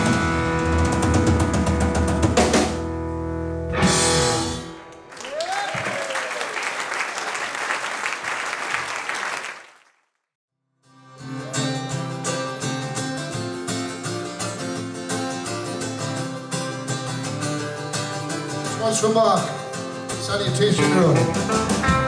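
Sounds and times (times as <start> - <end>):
band guitars and bass playing: 0.0 - 5.1, 11.0 - 22.0
audience applause: 5.1 - 10.0.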